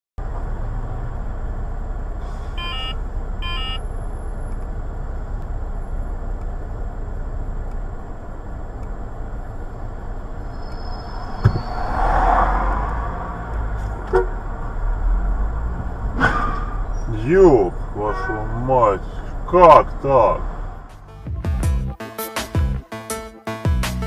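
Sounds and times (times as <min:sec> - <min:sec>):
cars idling in traffic: 0:00.2 - 0:11.8, 0:12.7 - 0:21.1
short car horn beeps: 0:02.6 - 0:03.8, 0:18.0 - 0:18.7.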